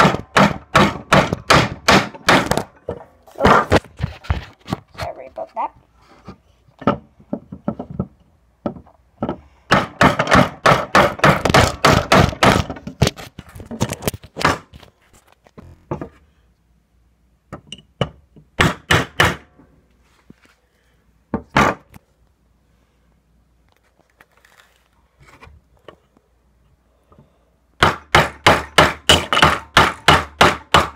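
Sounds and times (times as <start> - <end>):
hammer driving nail into wood: 0.0 - 2.7, 8.7 - 13.1, 18.0 - 19.5, 21.4 - 22.0, 27.8 - 30.9.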